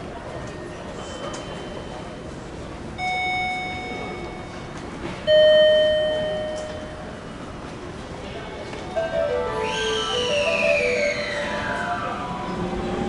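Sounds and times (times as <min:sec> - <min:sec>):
two-note electronic chime: 0:08.9 - 0:12.3.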